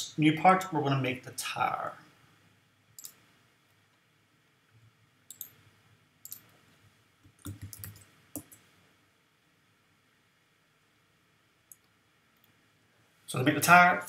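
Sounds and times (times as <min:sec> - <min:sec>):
computer mouse clicks: 0:03.0 - 0:03.2, 0:05.3 - 0:05.6, 0:06.2 - 0:06.5, 0:07.2 - 0:08.6, 0:11.7 - 0:12.6
keyboard key presses: 0:07.3 - 0:08.6.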